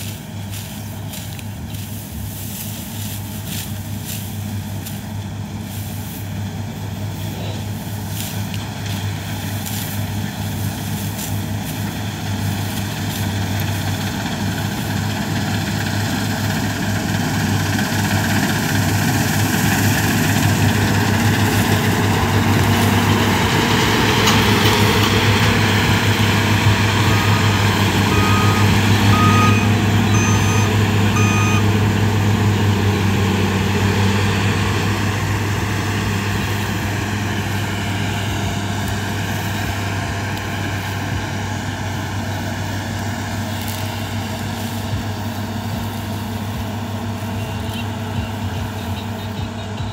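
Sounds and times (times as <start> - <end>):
combine harvester running: 0.0 - 49.9
high electronic beeps: 27.0 - 31.7.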